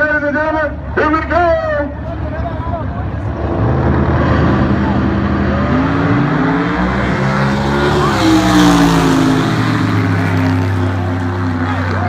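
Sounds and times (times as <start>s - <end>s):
drag racing cars at full throttle: 0.0s - 12.0s.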